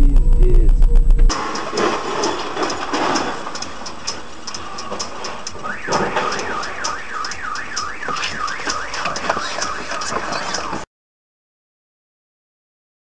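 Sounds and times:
car alarm warbling: 0:00.0 - 0:04.0, 0:05.4 - 0:10.8
regular ticking: 0:00.0 - 0:10.8.

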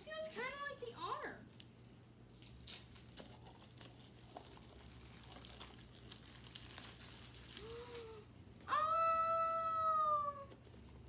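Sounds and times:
foil bag crinkling: 0:00.0 - 0:08.2.

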